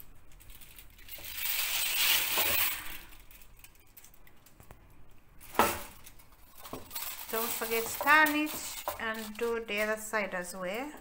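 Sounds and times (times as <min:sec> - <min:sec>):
aluminium foil crinkling: 0:00.0 - 0:04.8, 0:05.4 - 0:11.0.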